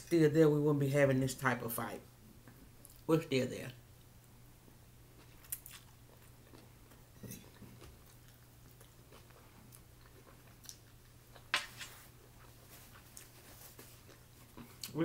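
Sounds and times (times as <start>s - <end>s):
faint chewing: 5.1s - 15.0s.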